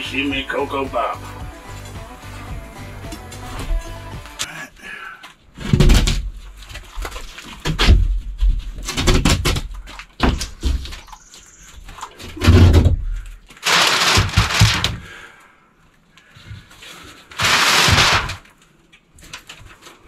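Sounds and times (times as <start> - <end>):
wooden panel scraping framing: 12.1 - 15.1, 16.9 - 18.5.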